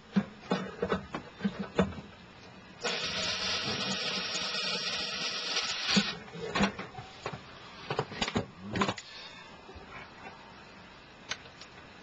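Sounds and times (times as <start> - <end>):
power drill driving a screw: 2.9 - 6.2.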